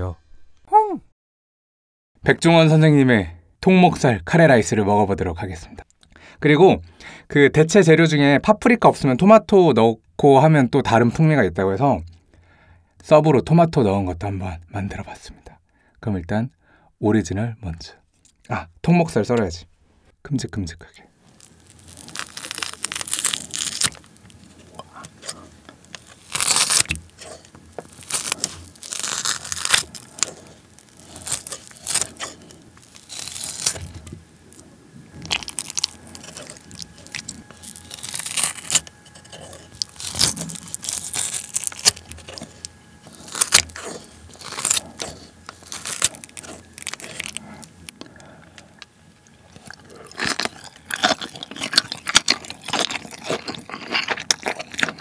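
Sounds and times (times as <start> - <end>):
close-up chewing: 21.2 - 55.0
scissors cutting meat: 21.5 - 34.1, 35.2 - 47.7.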